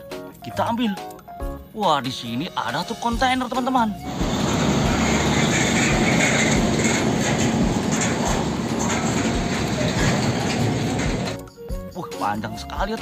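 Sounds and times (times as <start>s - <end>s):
truck engine and tyres rumble: 4.0s - 11.4s.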